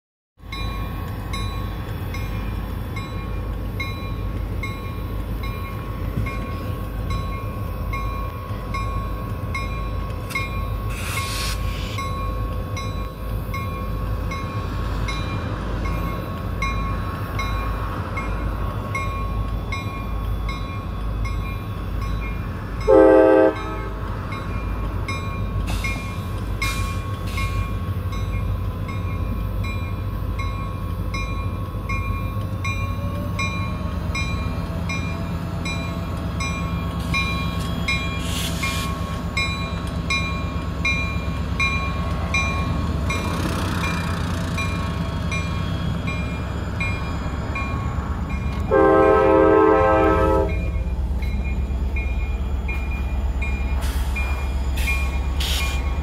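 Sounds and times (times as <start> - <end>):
crossing bell ringing: 0.4 - 11.0, 12.0 - 56.0
freight train rumbling past: 0.4 - 56.0
train horn blast: 22.9 - 24.0, 48.7 - 50.7.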